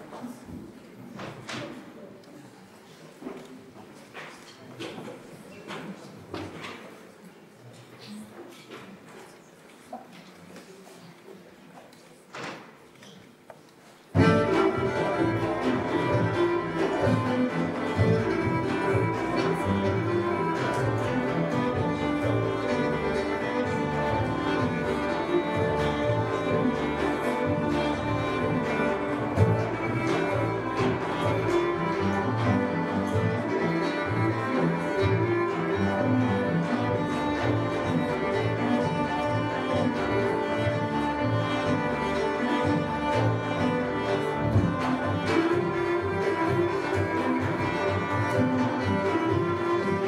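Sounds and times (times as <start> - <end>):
violin melody: 14.1 - 50.0
double bass: 14.2 - 50.0.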